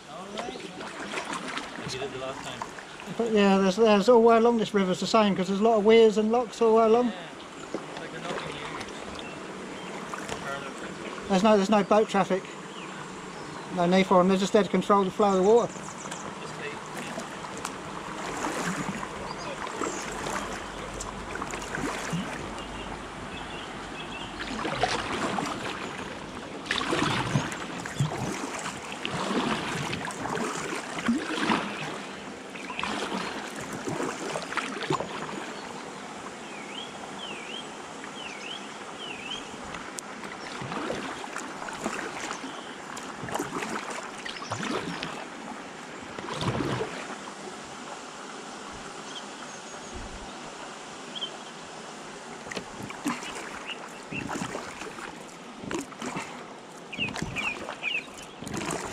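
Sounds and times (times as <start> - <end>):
paddle splashing in water: 0.0 - 4.4, 6.7 - 48.0, 52.2 - 58.9
bird chirping: 14.8 - 16.8, 53.2 - 54.4, 56.9 - 58.5.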